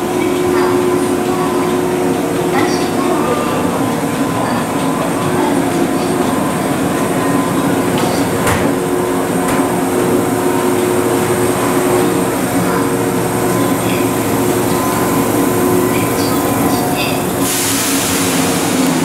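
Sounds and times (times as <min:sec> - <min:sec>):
electric train running and humming: 0:00.0 - 0:19.0.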